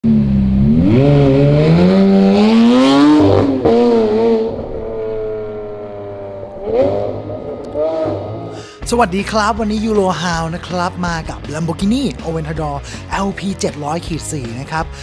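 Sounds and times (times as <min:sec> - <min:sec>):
exhaust crack at gear change: 0:00.0 - 0:08.6
car engine accelerating hard: 0:00.0 - 0:08.7.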